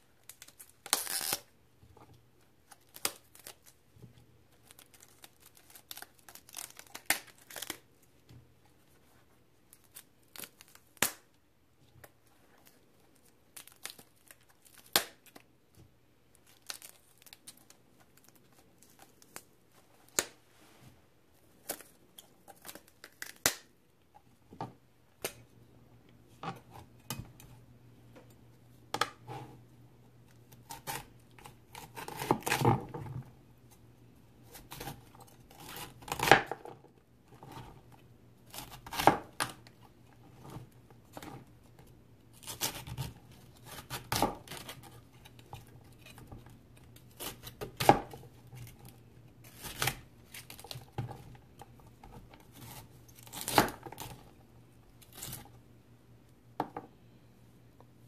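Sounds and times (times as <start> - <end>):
faint low hum: 0.0 - 58.0
cauliflower snapping and tearing: 0.3 - 1.5, 4.6 - 7.8.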